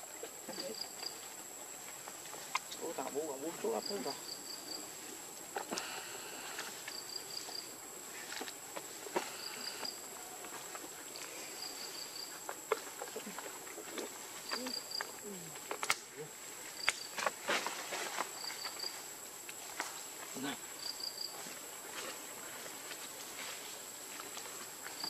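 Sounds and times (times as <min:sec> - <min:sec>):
monkeys rustling dry leaves: 0:04.9 - 0:25.0
high-pitched insect drone: 0:09.2 - 0:12.4.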